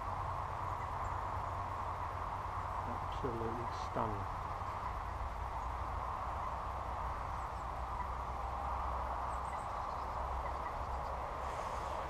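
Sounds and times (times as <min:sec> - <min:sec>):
even hiss: 0:11.4 - 0:12.0.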